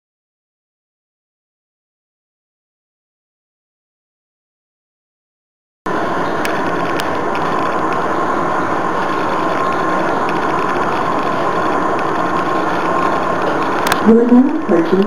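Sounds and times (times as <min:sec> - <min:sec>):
lift rushing noise: 0:05.9 - 0:15.0
thin steady whine: 0:05.9 - 0:15.0.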